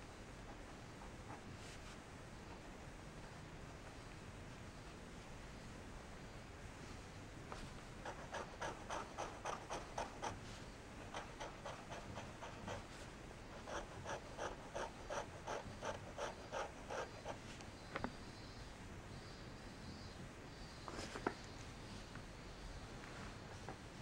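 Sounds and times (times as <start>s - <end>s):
fountain pen scratching paper: 8.0s - 10.4s, 11.0s - 12.9s, 13.5s - 17.4s.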